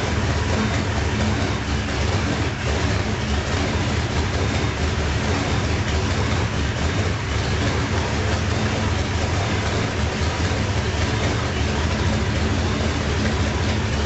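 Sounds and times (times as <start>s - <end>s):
radial aircraft engine running: 0.0s - 14.0s.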